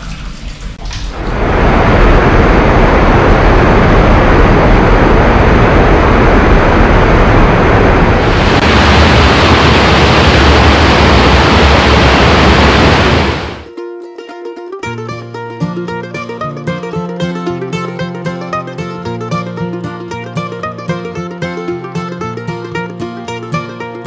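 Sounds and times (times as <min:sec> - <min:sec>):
water gushing and splashing: 0:00.0 - 0:13.7.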